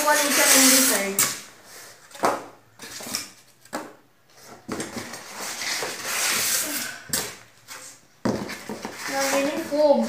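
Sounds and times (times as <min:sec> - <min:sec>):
foam scraping against cardboard: 0:00.0 - 0:01.2, 0:05.2 - 0:06.9, 0:08.8 - 0:10.0.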